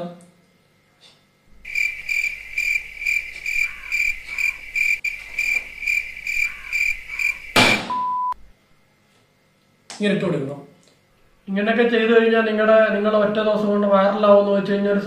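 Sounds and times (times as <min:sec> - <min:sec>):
cricket chirping: 0:01.6 - 0:08.4
sudden loud burst of noise: 0:07.5 - 0:08.0
short high beep: 0:07.8 - 0:08.4.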